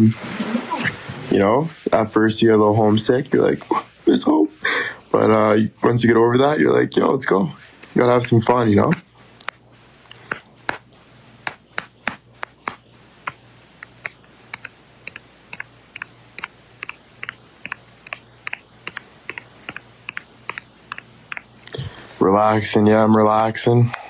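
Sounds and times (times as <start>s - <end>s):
fingers tapping touchscreen: 8.9s - 21.6s.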